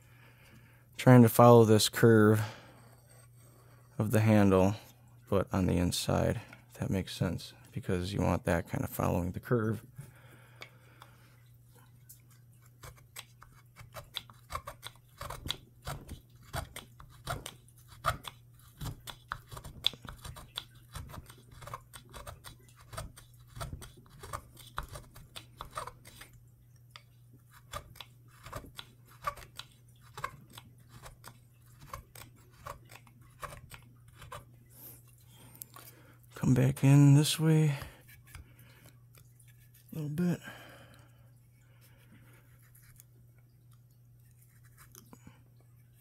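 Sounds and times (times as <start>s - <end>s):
gouge scraping wood: 2.7s - 4.1s, 12.6s - 26.4s, 27.5s - 34.5s, 44.4s - 45.0s.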